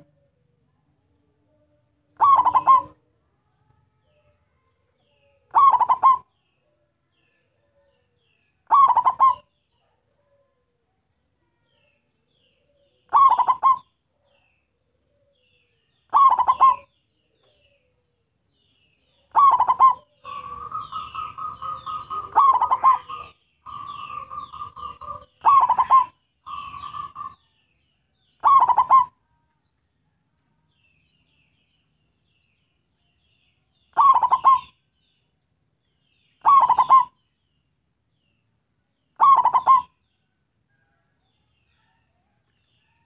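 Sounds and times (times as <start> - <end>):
faint bird chirps: 0.0 - 43.0
dove cooing: 1.5 - 3.1, 5.2 - 6.8, 7.4 - 10.6, 12.6 - 18.2, 19.2 - 27.6, 28.4 - 29.2, 33.9 - 34.8, 36.4 - 37.2, 39.2 - 40.0
bird trilling: 2.2 - 3.0, 5.5 - 6.3, 8.6 - 9.5, 13.1 - 13.9, 16.1 - 16.9, 19.3 - 27.5, 28.4 - 29.2, 33.9 - 34.8, 36.3 - 37.2, 39.2 - 40.0.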